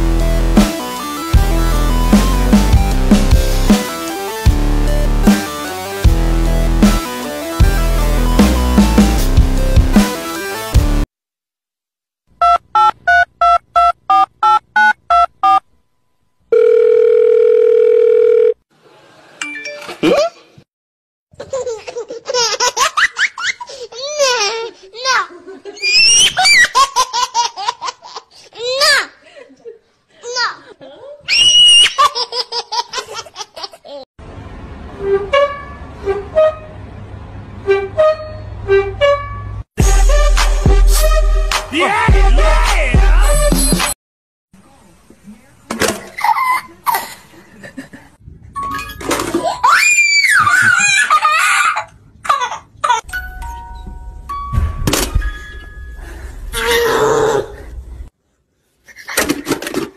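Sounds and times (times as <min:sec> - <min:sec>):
loud music: 0:00.0 - 0:11.0, 0:39.8 - 0:44.0
steady phone tone: 0:16.5 - 0:18.6
baby squealing: 0:25.8 - 0:26.9, 0:31.3 - 0:32.2, 0:49.4 - 0:51.8, 0:56.6 - 0:57.4
baby crying: 0:56.6 - 0:57.6.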